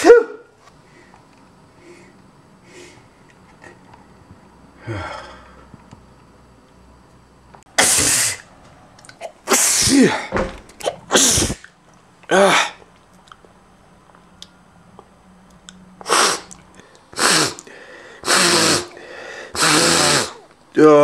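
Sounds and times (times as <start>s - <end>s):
man sneezing loudly: 7.8s - 8.5s, 9.5s - 11.7s, 16.0s - 16.5s, 17.2s - 20.5s.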